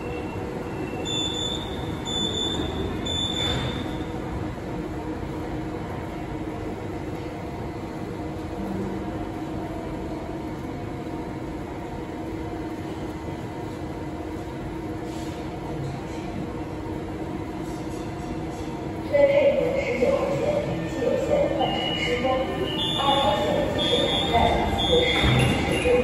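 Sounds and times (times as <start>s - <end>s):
train equipment humming: 16.5s - 26.0s.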